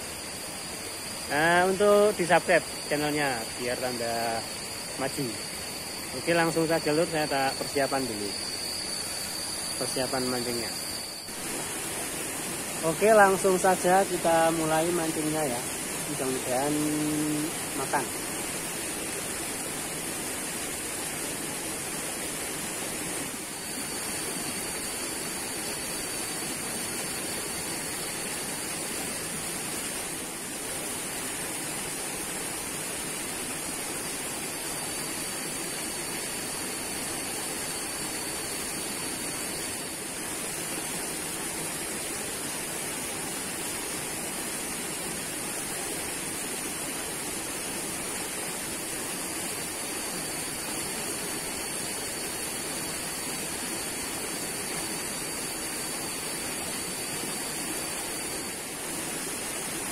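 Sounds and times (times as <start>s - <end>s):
stream rushing hiss: 0.0s - 59.9s
thin high whine: 0.0s - 59.9s.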